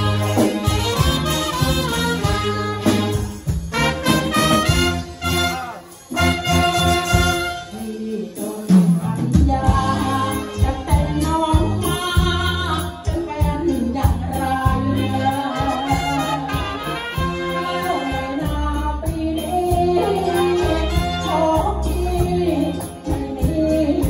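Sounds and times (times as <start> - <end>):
live band playing: 0.0 - 24.0
man singing: 19.4 - 24.0.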